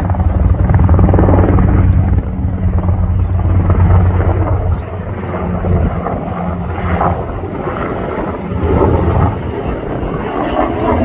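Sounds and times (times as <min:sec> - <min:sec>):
helicopter rotor beating: 0:00.0 - 0:11.0.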